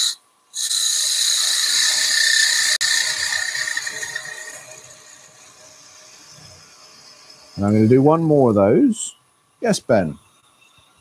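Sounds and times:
lathe tool cutting wood: 0:00.0 - 0:08.3.

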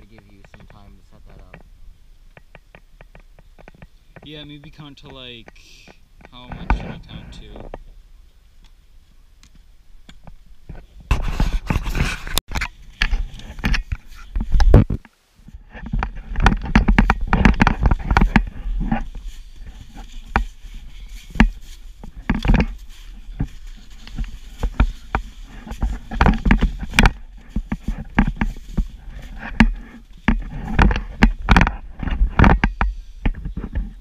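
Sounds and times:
knocks and scrapes on camera casing: 0:10.7 - 0:34.0.

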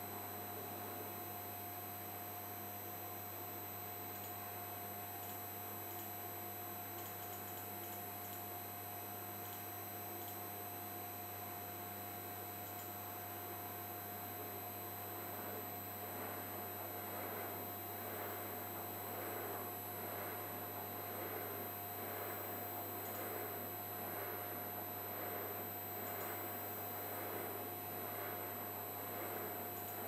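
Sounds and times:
machine electrical hum and whine: 0:00.0 - 0:30.0
keyboard clicks: 0:05.2 - 0:06.1, 0:06.9 - 0:08.4, 0:09.4 - 0:10.4, 0:12.6 - 0:13.0.

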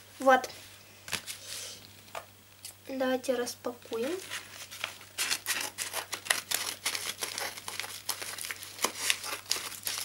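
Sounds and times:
envelope crinkling: 0:04.0 - 0:10.0.

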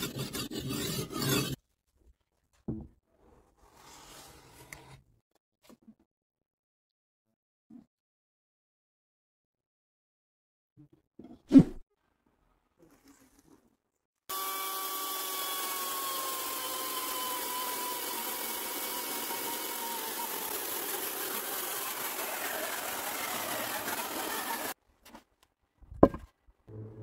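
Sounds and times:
electric power tool whining: 0:14.3 - 0:24.8.

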